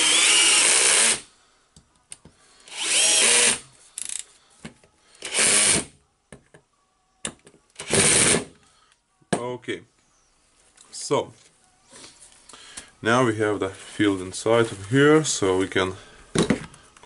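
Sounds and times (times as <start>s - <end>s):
cordless drill whining: 0.0s - 1.2s, 2.6s - 4.2s, 5.2s - 5.9s.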